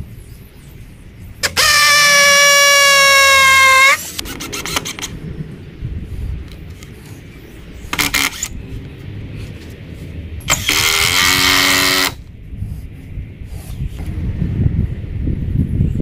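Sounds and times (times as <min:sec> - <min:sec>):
cordless drill motor whining: 0:01.4 - 0:05.1, 0:08.0 - 0:08.5, 0:10.5 - 0:12.2.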